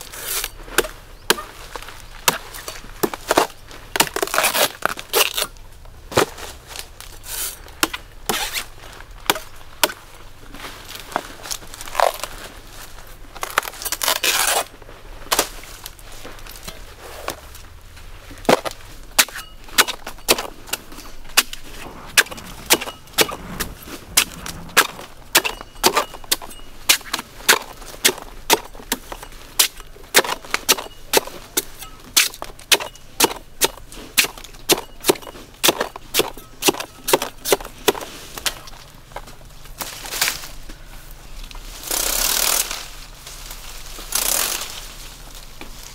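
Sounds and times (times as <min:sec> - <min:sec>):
short rustle: 0:20.8 - 0:27.8.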